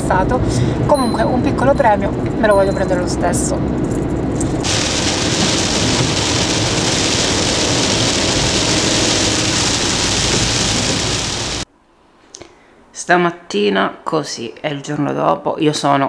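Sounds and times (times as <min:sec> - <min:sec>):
rain on car windscreen: 0:04.4 - 0:11.7
tyre noise on wet road: 0:04.4 - 0:11.7.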